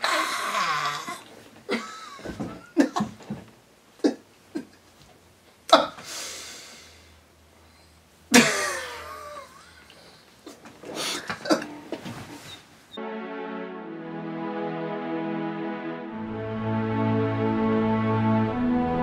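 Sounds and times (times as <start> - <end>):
man making cough-like bursts: 8.3 - 9.8.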